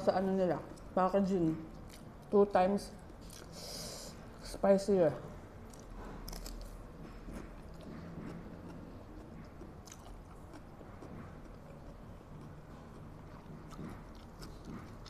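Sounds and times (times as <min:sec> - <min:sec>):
woman chewing noodles: 0:05.6 - 0:15.0.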